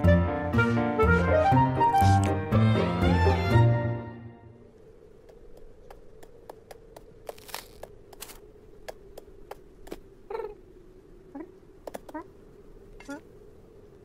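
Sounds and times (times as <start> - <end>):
faint steady hum: 4.2 - 14.0
soft footstep clicks: 5.2 - 10.1
cartoon cat vocal noises: 10.3 - 10.7.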